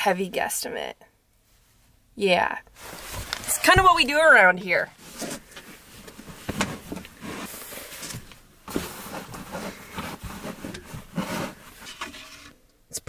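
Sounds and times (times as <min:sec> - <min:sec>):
clothes rustling: 0:02.7 - 0:12.6.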